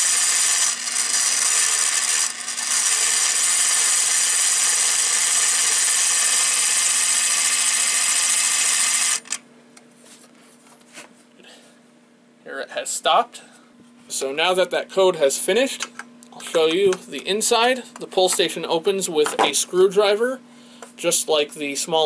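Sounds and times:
clockwork mechanism running: 0.0 - 9.4.

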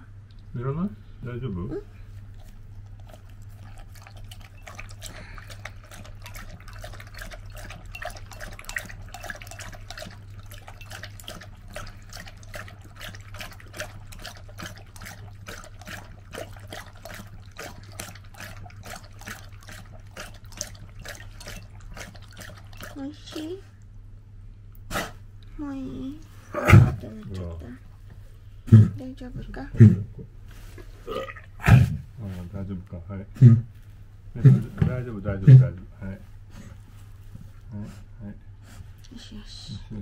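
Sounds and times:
dog lapping water: 2.0 - 23.9, 26.2 - 28.1, 28.7 - 30.2.

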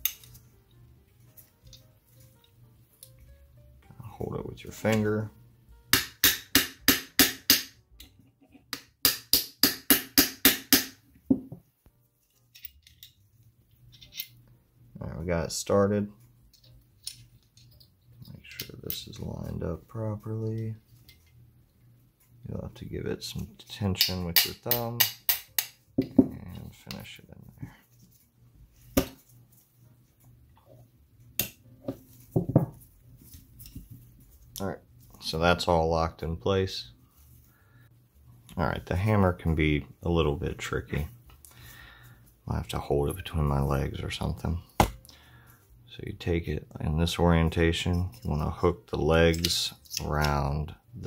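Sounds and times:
hammer tapping metal pin: 24.0 - 26.3.

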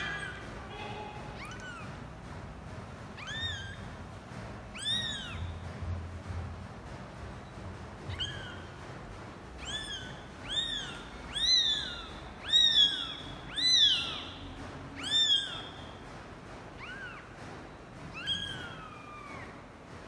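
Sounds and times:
kitten mewing: 0.0 - 1.8, 3.2 - 3.8, 4.8 - 5.4, 8.1 - 8.7, 9.6 - 14.4, 15.0 - 15.7.

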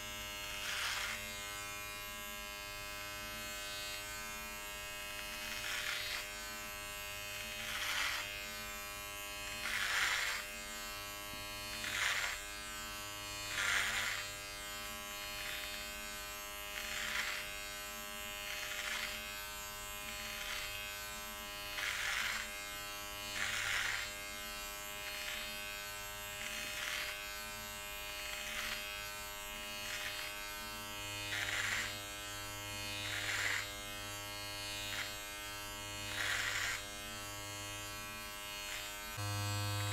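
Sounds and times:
electric trimmer cutting beard: 0.0 - 39.9.

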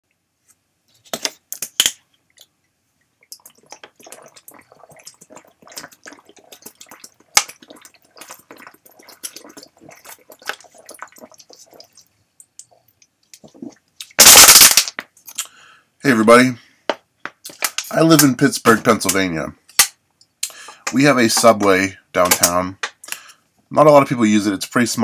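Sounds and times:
person gulping water: 2.3 - 14.5
plastic bottle crinkling: 3.3 - 12.0, 13.4 - 15.4, 17.3 - 19.3
plastic bottle cracking: 14.2 - 15.2, 17.3 - 18.3.

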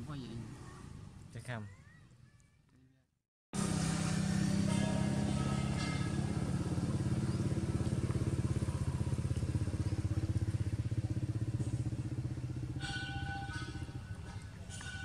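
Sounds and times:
engine running at low revs: 3.6 - 15.0.

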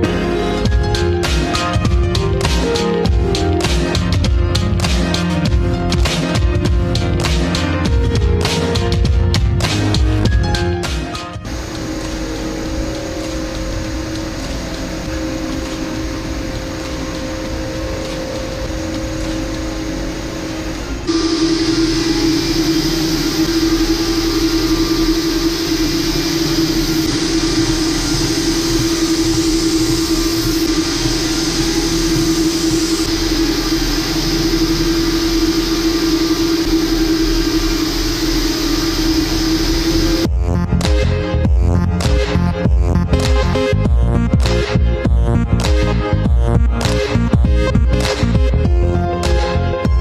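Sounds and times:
knitting machine running: 11.4 - 40.3
constant hum: 11.4 - 48.8.

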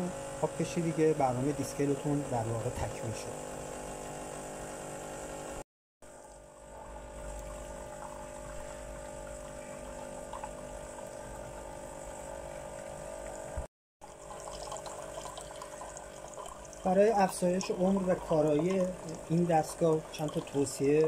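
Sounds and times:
water pump humming: 0.0 - 21.0
water pouring into a cup: 7.1 - 11.8, 14.0 - 21.0.

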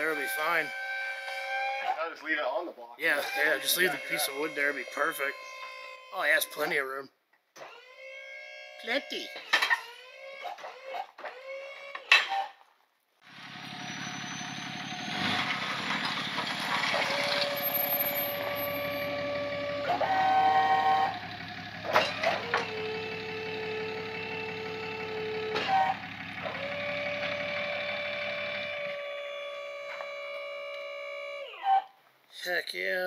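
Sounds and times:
truck engine running: 0.0 - 2.2, 3.1 - 6.8, 13.2 - 31.5
whine changing pitch: 3.1 - 6.8
metal clanks: 9.4 - 9.9, 21.8 - 22.8.

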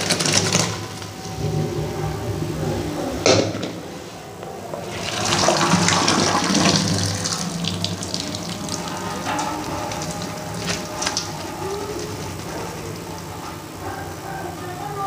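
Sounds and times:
water draining into steel sink: 0.0 - 13.8.

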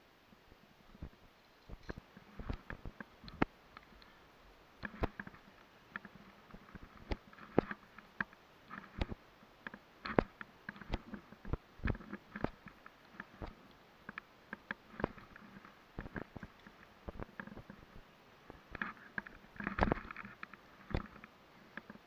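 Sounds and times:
hands and boots on iron rungs: 4.8 - 22.0.

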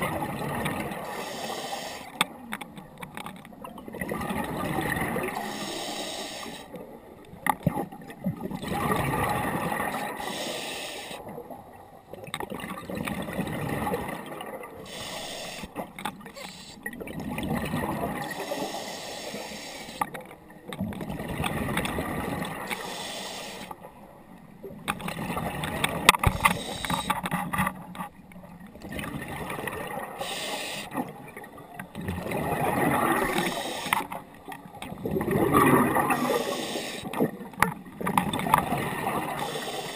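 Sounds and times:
exhaled bubbles gurgling: 0.0 - 2.5, 3.6 - 23.8, 24.6 - 27.1, 28.4 - 39.9
diver breathing through regulator: 1.0 - 2.2, 5.4 - 6.7, 10.1 - 11.2, 14.9 - 16.8, 18.3 - 20.1, 22.6 - 23.8, 26.4 - 27.2, 30.1 - 31.0, 33.2 - 34.2, 36.0 - 37.1, 39.3 - 39.9.

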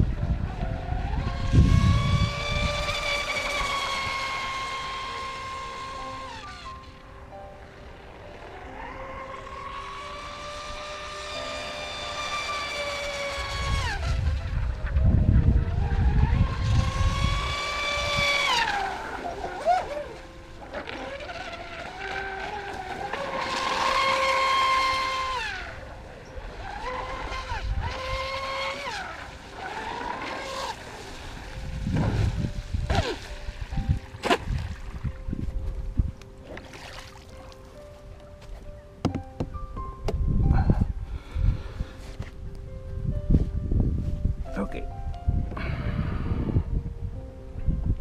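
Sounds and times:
wind gusts on microphone: 0.0 - 4.9, 13.2 - 20.6, 23.6 - 29.0, 29.9 - 36.4, 39.5 - 48.0
electric motor whine of boat: 0.0 - 44.4
low rumble: 13.5 - 19.5, 42.4 - 48.0.

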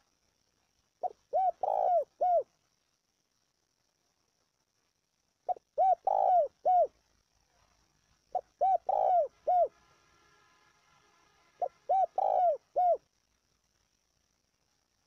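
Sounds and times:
dove cooing: 1.0 - 2.5, 5.5 - 7.0, 8.3 - 9.7, 11.6 - 13.0.

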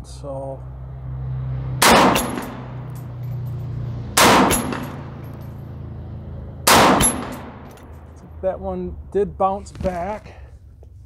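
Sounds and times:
rifle shots: 1.8 - 2.7, 4.2 - 5.1, 6.6 - 7.7.

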